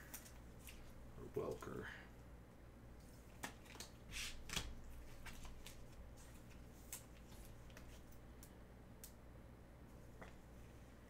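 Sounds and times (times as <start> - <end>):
card rustle: 3.0 - 8.2.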